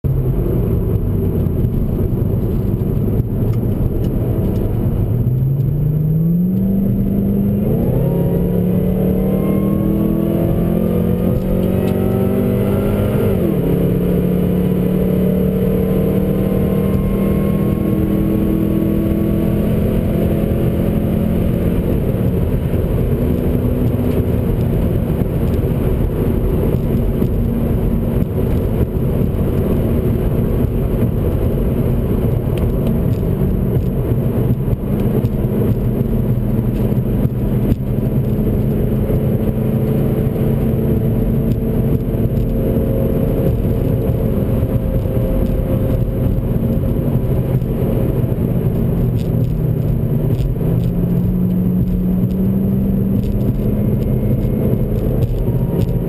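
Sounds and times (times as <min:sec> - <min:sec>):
car engine accelerating: 0:00.0 - 0:56.0
wind and road noise: 0:00.0 - 0:56.0.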